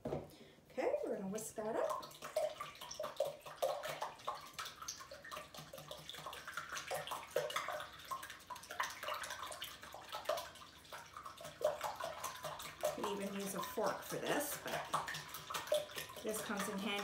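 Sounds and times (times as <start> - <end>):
eggs sloshing: 1.1 - 17.0
whisk clicking against glass bowl: 11.4 - 17.0.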